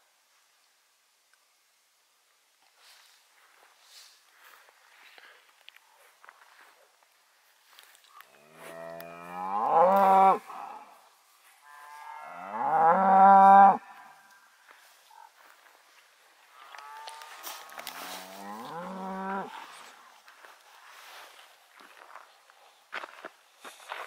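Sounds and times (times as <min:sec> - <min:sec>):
cow mooing: 0:08.4 - 0:11.0, 0:11.7 - 0:13.8, 0:16.6 - 0:19.6.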